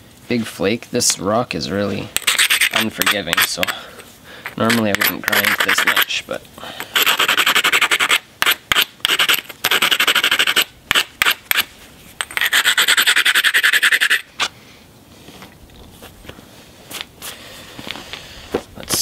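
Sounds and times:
stone rasping against stone: 0:02.2 - 0:03.8, 0:04.4 - 0:06.2, 0:06.9 - 0:14.3.

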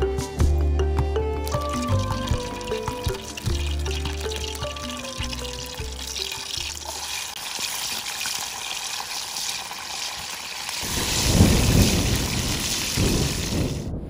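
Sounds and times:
garlic sizzling in hot oil: 0:01.5 - 0:13.8
wind buffeting microphone: 0:10.8 - 0:14.0.

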